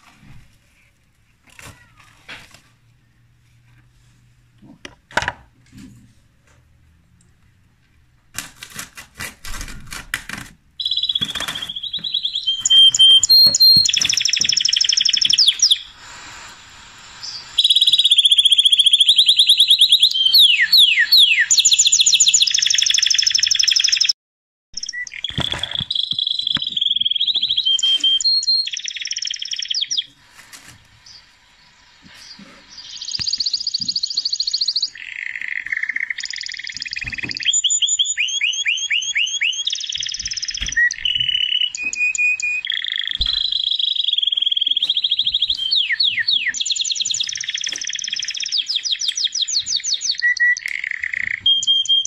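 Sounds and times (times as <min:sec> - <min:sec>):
songbird trilling: 0:10.8 - 0:16.0, 0:17.2 - 0:24.1, 0:24.8 - 0:30.1, 0:32.6 - 0:52.0.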